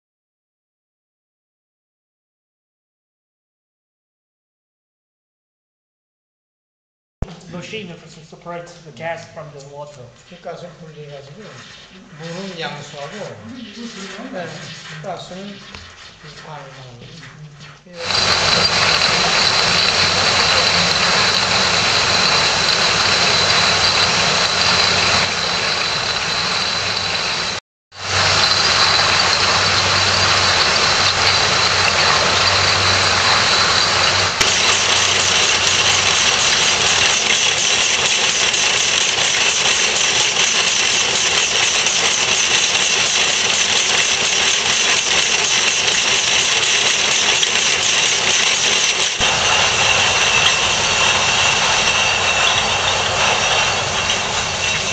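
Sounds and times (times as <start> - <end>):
bottling machinery drone: 7.2 - 54.9
machinery high whine: 7.2 - 54.9.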